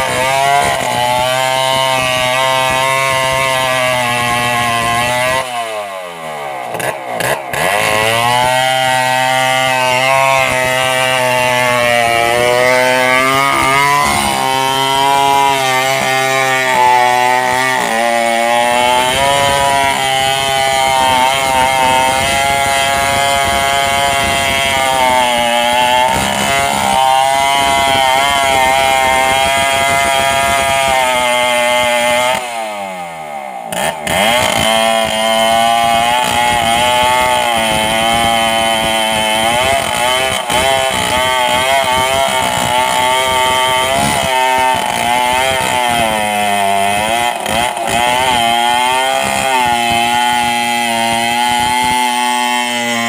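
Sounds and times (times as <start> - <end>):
chainsaw cutting log: 0.0 - 53.0.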